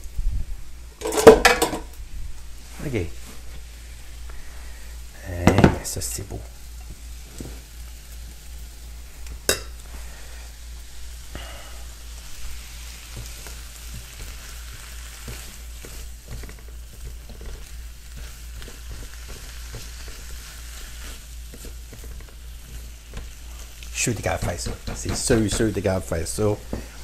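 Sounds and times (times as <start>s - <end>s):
vegetables sizzling in a wok: 0.0s - 27.0s
spatula scraping a wok: 1.0s - 1.8s, 12.2s - 27.0s.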